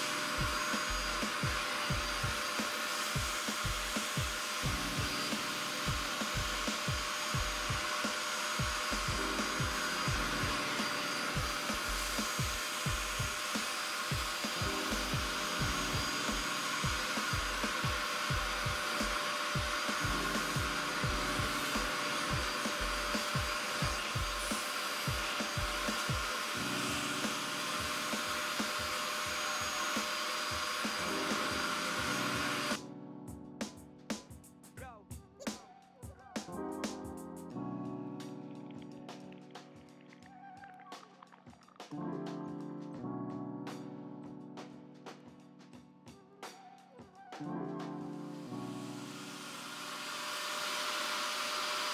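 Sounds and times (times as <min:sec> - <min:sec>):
vacuum rushing hiss: 0:00.0 - 0:32.8, 0:48.3 - 0:51.9
background music with beat: 0:00.0 - 0:49.4.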